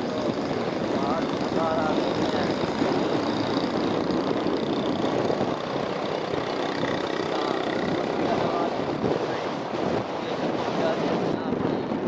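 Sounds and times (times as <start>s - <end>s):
vehicle engine running: 0.0s - 9.4s
road noise: 0.0s - 12.0s.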